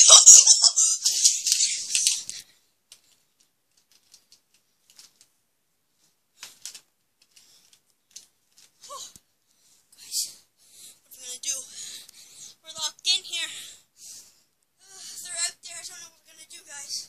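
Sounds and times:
faint clicks and ticks: 1.4 - 5.4, 6.0 - 10.0.

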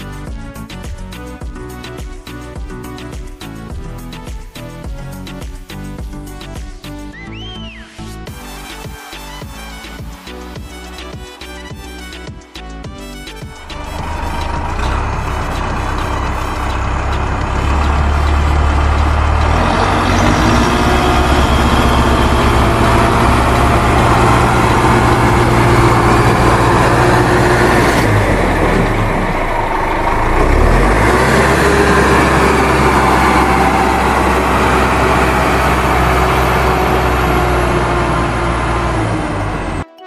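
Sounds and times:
heavy vehicle engine running: 13.4 - 39.8.

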